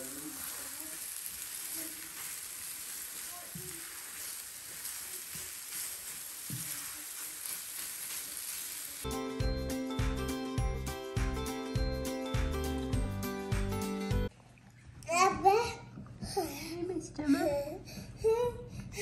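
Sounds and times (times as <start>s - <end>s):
spatula stirring in a pan: 0.0s - 9.1s
eggs sizzling in a frying pan: 0.0s - 9.6s.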